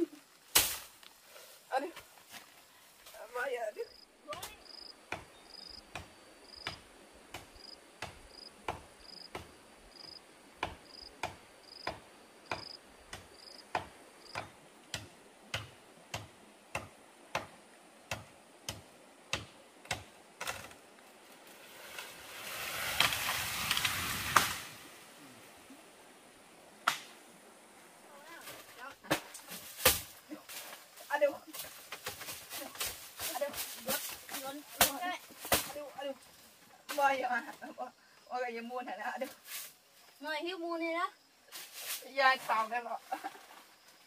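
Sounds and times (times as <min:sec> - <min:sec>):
loud hissing noise: 0:21.6 - 0:27.6.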